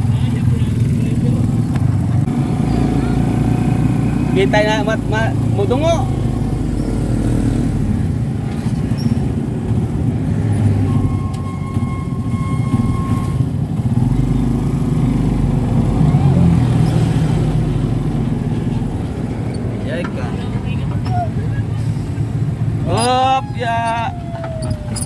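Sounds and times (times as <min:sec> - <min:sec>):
vehicle road noise rumble: 0:00.0 - 0:25.0.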